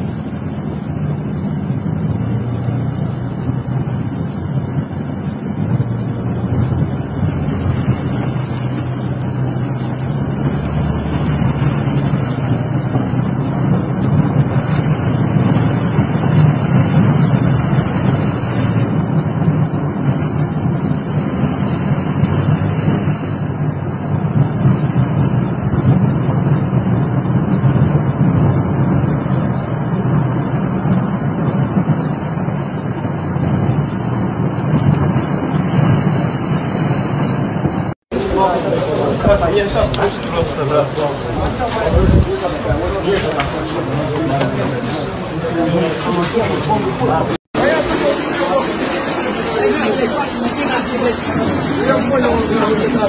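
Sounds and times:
car driving on wet road: 0.0s - 53.0s.

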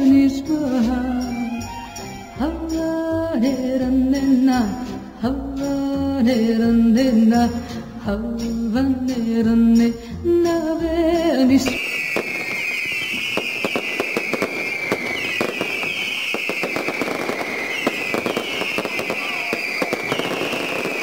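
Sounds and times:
background music: 0.0s - 21.0s
falling firework whistle: 11.6s - 21.0s
fireworks crackling: 11.6s - 21.0s.

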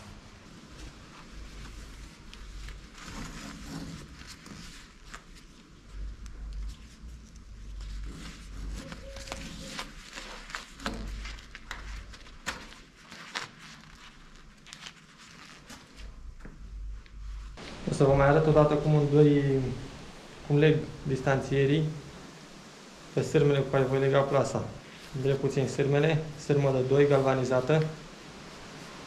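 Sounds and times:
low rumble: 16.0s - 25.3s.

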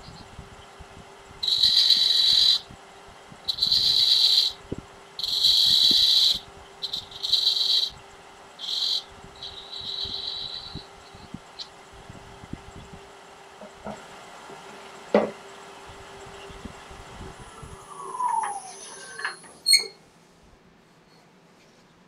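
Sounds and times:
lathe hum: 0.0s - 19.7s
lathe tool scratchy cuts: 1.4s - 2.6s, 3.5s - 4.6s, 5.2s - 8.0s, 8.6s - 11.3s.

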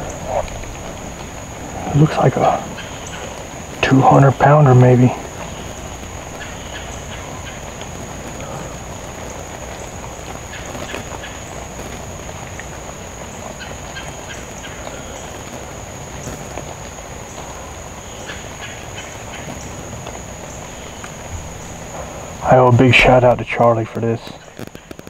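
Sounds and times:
low rumbling background: 0.0s - 24.6s
high-pitched insect chorus: 0.0s - 25.0s
faint clicks: 5.2s - 22.2s, 23.6s - 25.0s.

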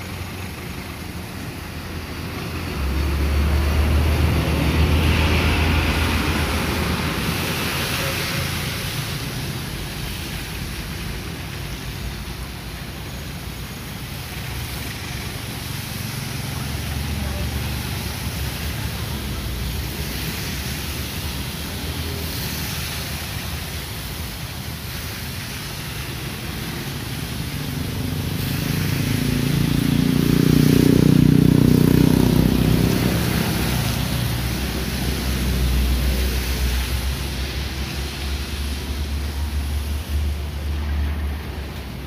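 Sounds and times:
diesel locomotive engine rumbling: 0.0s - 42.0s
rain hissing: 0.0s - 42.0s.

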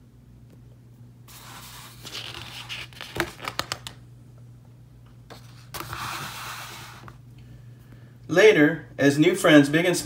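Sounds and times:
paper page rustling: 1.3s - 4.0s, 5.3s - 7.2s
sharp paper crackles: 1.3s - 4.0s.

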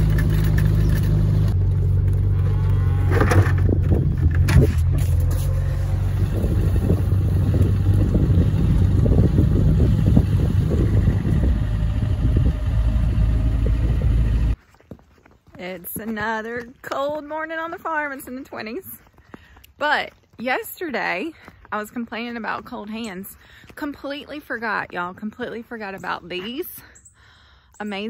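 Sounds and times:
pickup truck engine running: 0.0s - 14.6s.

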